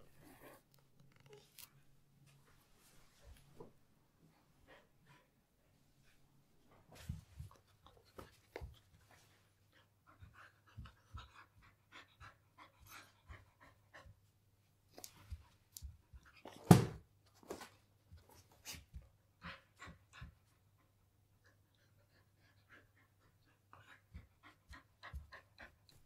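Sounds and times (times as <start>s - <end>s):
dog panting: 7.1s - 14.4s, 18.7s - 26.0s.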